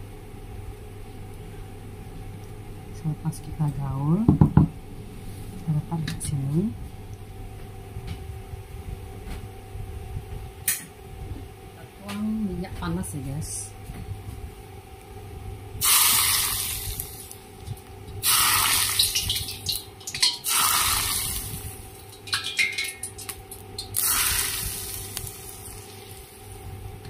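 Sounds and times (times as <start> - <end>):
hot oil hissing: 15.8 - 17.5, 18.2 - 26.6.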